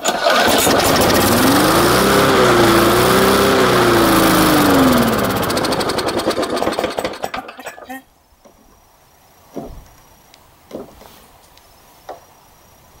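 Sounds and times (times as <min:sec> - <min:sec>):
lawn mower engine running: 0:00.0 - 0:07.8.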